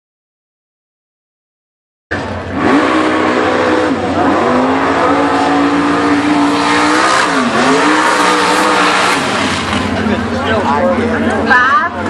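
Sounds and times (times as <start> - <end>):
buggy engine revving hard: 2.1 - 11.5.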